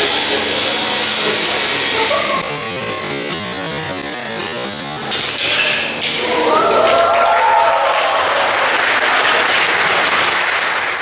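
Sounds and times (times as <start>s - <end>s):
audience applause: 6.2s - 11.0s.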